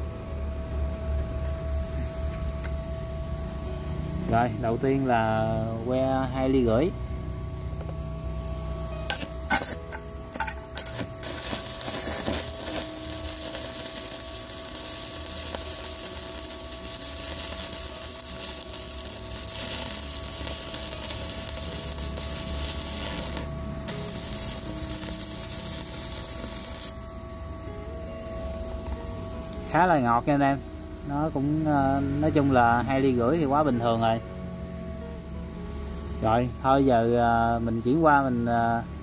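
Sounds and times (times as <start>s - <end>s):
steady high whine: 0.0s - 39.0s
welding arc crackle: 9.1s - 27.0s
welding arc striking scratches: 9.1s - 27.0s.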